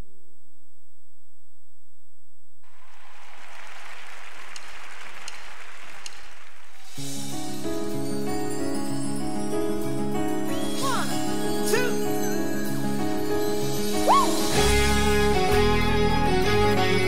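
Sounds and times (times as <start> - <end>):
congregation applauding: 2.6 - 6.8
gospel backing track with bells: 7.0 - 17.0.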